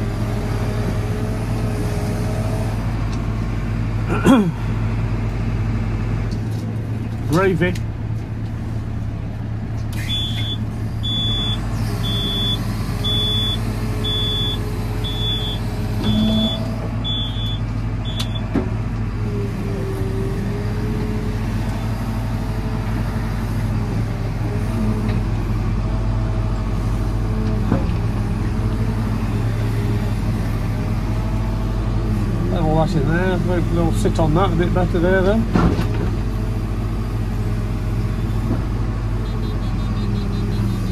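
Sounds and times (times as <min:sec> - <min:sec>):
diesel engine running under load: 0:00.0 - 0:40.9
high warning beeper: 0:10.1 - 0:18.2.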